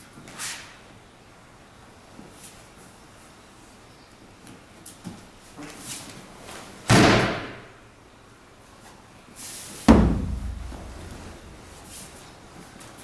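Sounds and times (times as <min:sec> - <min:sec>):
body slamming onto padded mat: 0:06.9 - 0:07.6, 0:09.9 - 0:11.4
soft rustles: 0:08.8 - 0:13.0.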